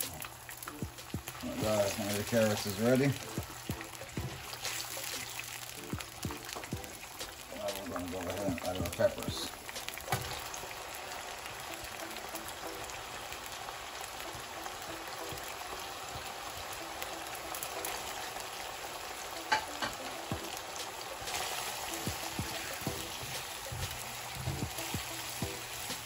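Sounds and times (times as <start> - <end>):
spatula stirring vegetables: 0.0 - 11.4, 19.5 - 26.0
vegetables sizzling in a frying pan: 0.0 - 26.0.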